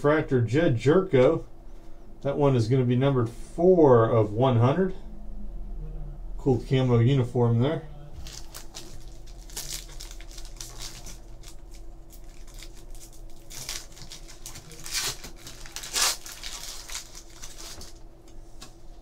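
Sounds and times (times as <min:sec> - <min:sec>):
foil wrapper crinkling and tearing: 0:08.2 - 0:18.0.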